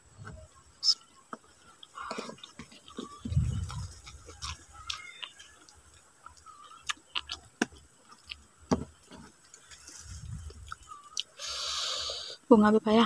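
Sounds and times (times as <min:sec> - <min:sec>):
close chewing of food: 0:00.9 - 0:12.1.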